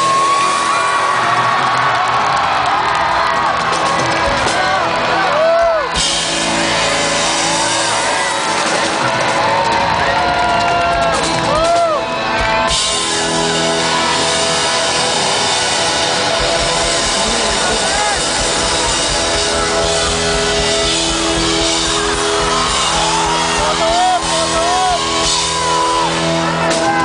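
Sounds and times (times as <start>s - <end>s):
crowd screaming and whooping: 0.0s - 27.0s
live rock band playing: 0.0s - 27.0s.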